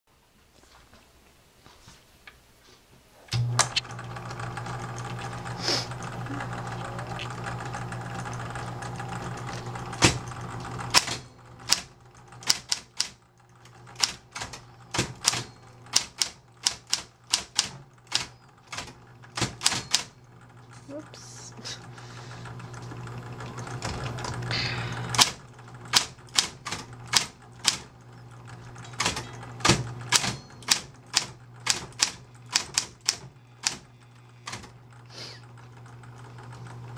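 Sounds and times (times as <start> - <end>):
typewriter motor humming: 3.3 - 36.9
typewriter keys clacking: 9.4 - 13.2, 14.0 - 20.2, 25.1 - 27.9, 28.7 - 33.8
typewriter switch clunk: 10.0 - 13.2, 14.0 - 20.1, 25.1 - 27.9, 28.9 - 33.8, 34.4 - 34.8.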